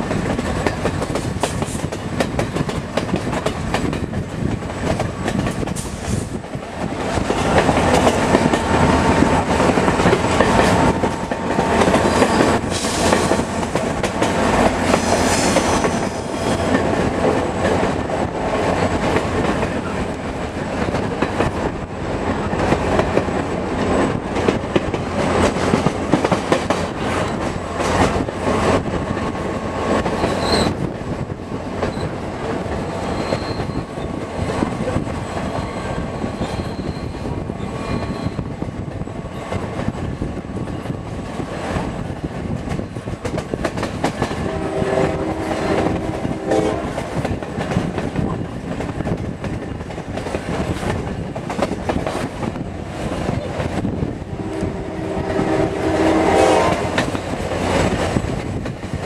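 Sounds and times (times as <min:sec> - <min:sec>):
train rolling rumble: 0:00.0 - 0:59.0
train wheels clattering over joints: 0:40.6 - 0:44.5, 0:46.9 - 0:54.0
train horn blasts: 0:44.2 - 0:47.2, 0:54.2 - 0:57.2.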